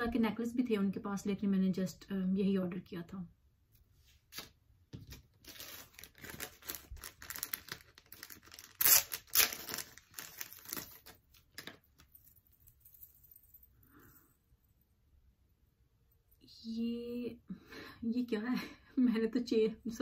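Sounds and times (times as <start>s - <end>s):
plastic bag crinkling and tearing: 5.1s - 12.1s.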